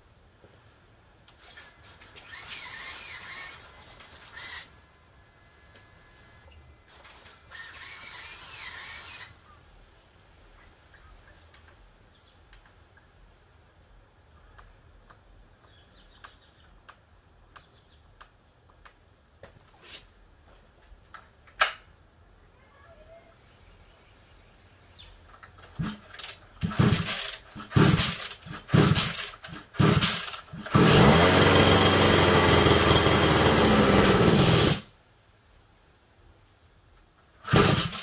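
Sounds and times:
recoil starter pulls: 1.3s - 4.7s, 6.9s - 9.3s, 25.4s - 34.9s, 37.4s - 38.0s
small two-stroke engine running: 2.2s - 3.6s, 7.1s - 9.2s, 25.8s - 34.9s, 37.4s - 38.0s.

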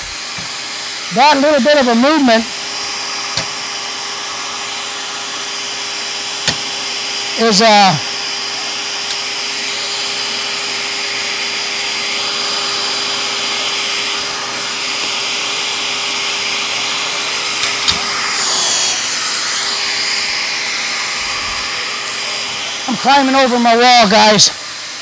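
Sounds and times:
motor whirring: 0.0s - 24.8s.

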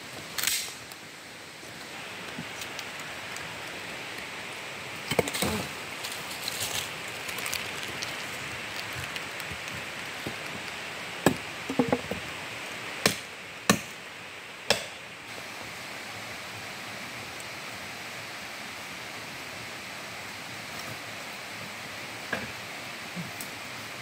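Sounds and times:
wooden sticks knocking together: 11.3s - 12.2s.

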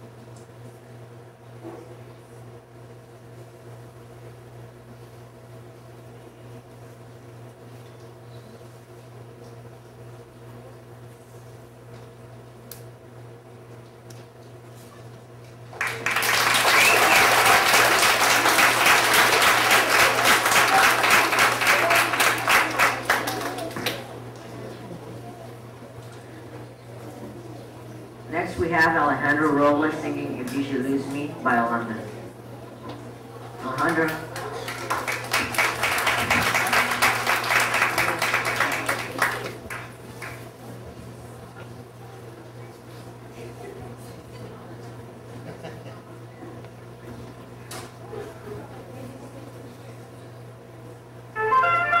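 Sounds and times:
audience applauding: 15.7s - 24.8s, 33.7s - 40.4s.

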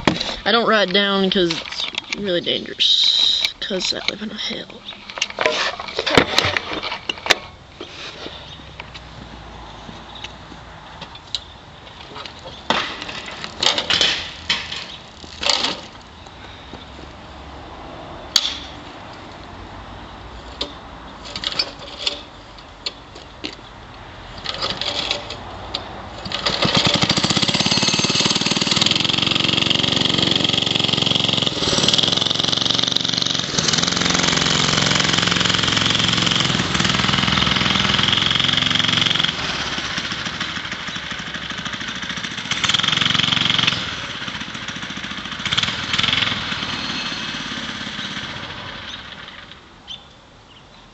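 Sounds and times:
small engine starting and running: 26.2s - 49.6s.

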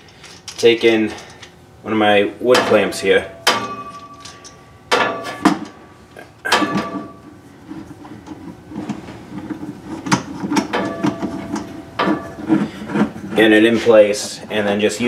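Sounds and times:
clamp scraping against wood: 7.7s - 14.4s.

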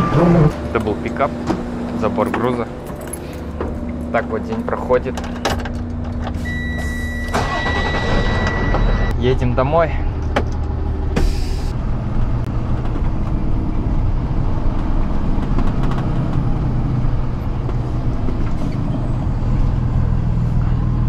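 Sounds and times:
road noise: 0.0s - 21.0s
truck engine running: 0.0s - 21.0s.

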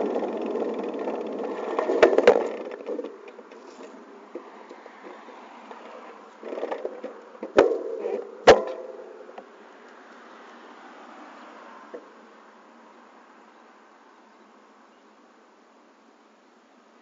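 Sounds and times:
bicycle knocking over bumps: 0.0s - 4.5s, 5.1s - 9.0s.

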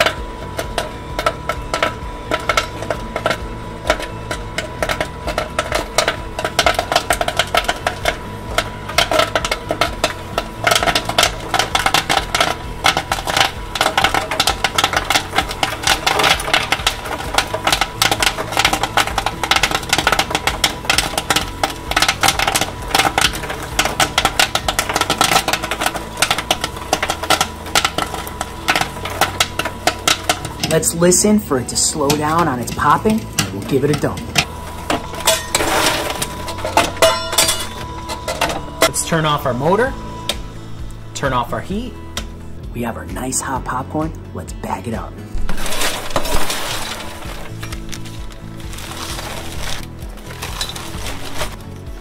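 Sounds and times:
stirring motor hum: 0.0s - 39.0s
popcorn popping: 0.0s - 52.0s.

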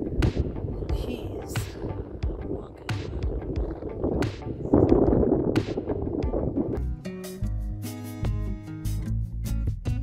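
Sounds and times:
wind buffeting microphone: 0.0s - 7.0s.

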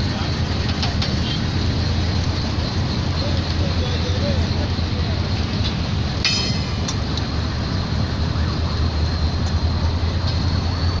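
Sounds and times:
locomotive engine rumble: 0.0s - 11.0s.

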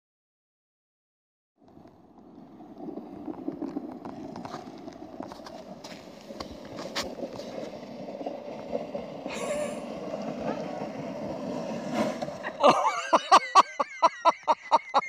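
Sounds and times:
sled clicks and knocks on bumps: 1.6s - 13.1s
plastic sled scraping over snow: 1.6s - 13.4s.

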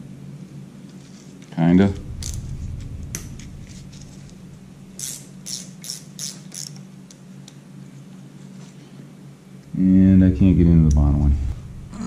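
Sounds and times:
steady low hum: 0.0s - 12.0s
hand ratchet clicking: 5.0s - 6.8s.

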